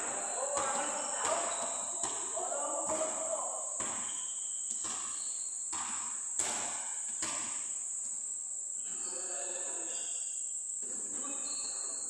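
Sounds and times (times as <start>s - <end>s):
high-pitched insect drone: 0.0s - 5.7s, 8.7s - 12.0s
basketball bouncing on court floor: 0.1s - 8.2s.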